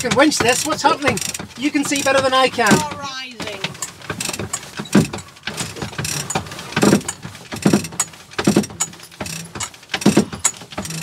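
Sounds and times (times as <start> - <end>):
winch ratchet clicking: 0.0 - 11.0.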